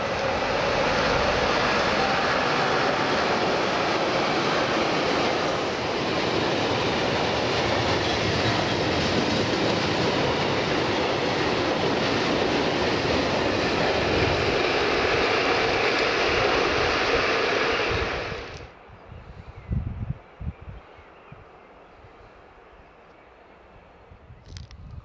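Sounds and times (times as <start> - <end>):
freight train wheels on rails: 0.0 - 18.8.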